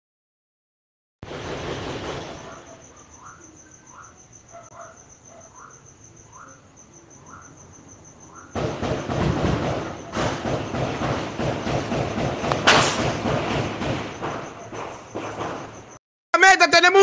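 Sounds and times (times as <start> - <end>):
loud burst of noise: 1.2 - 2.5, 8.6 - 14.4
short rising insect call: 1.3 - 16.0
insects trilling: 1.8 - 16.0.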